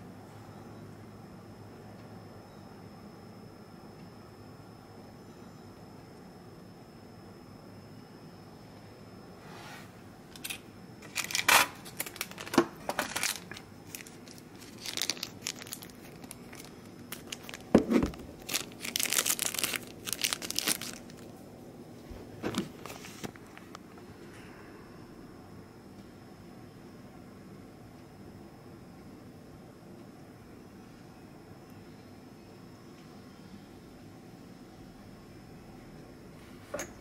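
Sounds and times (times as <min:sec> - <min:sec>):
plastic bags crinkling: 0:10.4 - 0:21.3.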